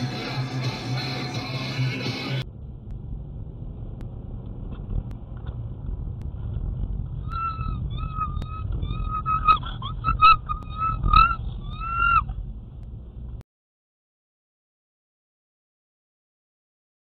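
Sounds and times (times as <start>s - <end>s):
steady low rumble: 0.0s - 13.4s.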